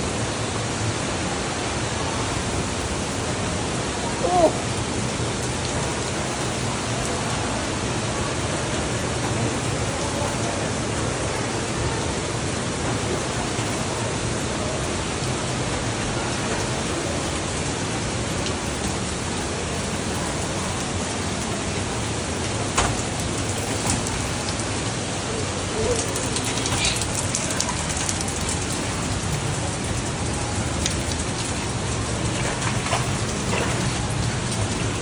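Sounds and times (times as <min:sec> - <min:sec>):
waterfall spattering on rock: 0:25.9 - 0:35.0.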